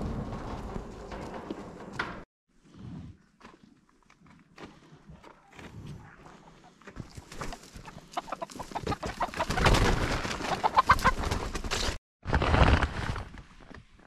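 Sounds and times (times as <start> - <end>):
hens clucking: 6.2 - 9.8, 10.4 - 11.4.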